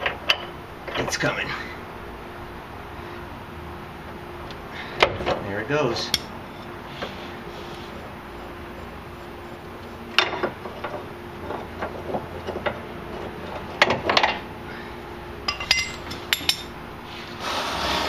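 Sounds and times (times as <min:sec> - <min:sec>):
metallic clinks and knocks: 0:15.5 - 0:16.7.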